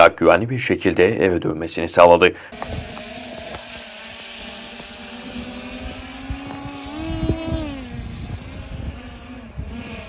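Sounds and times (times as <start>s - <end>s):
drone propellers buzzing: 2.5s - 10.0s
wind rumble on microphone: 2.6s - 10.0s.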